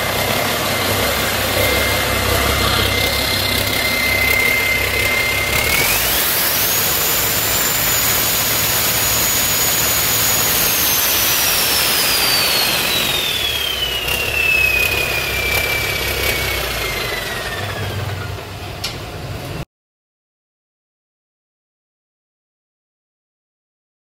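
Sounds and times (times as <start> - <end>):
turbocharger whistle: 0.0 - 18.3
diesel engine rumble: 0.0 - 19.6.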